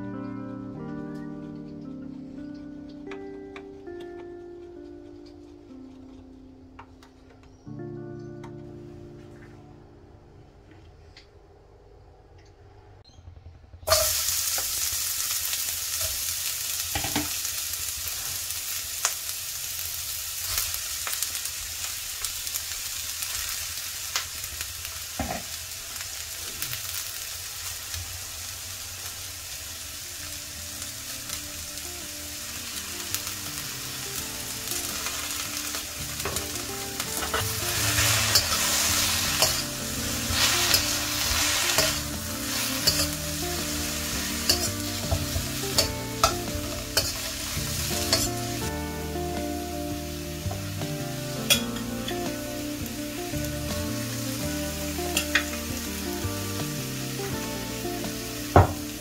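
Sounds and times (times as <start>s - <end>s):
vegetables sizzling in hot oil: 13.9s - 59.0s.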